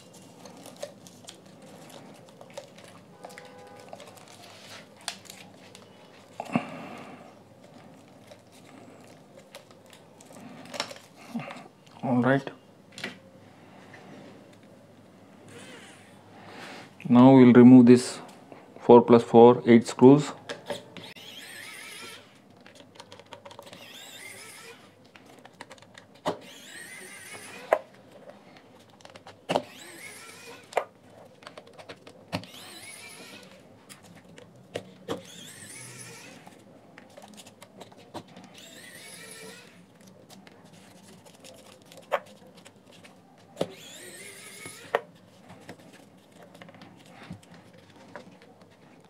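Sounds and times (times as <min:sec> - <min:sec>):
electric screwdriver whining: 0:21.0 - 0:22.4, 0:23.6 - 0:25.0, 0:26.3 - 0:27.8, 0:29.5 - 0:30.9, 0:32.3 - 0:33.6, 0:35.1 - 0:36.6, 0:38.4 - 0:39.8, 0:43.6 - 0:45.0.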